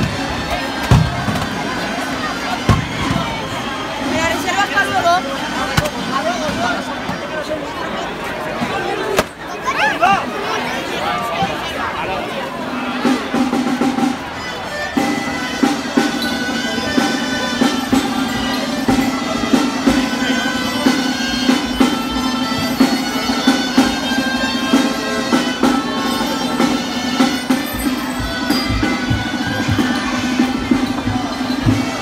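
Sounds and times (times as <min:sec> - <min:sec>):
drum beats: 0:00.0 - 0:07.3, 0:12.9 - 0:32.0
pipes playing dance tune: 0:13.4 - 0:32.0.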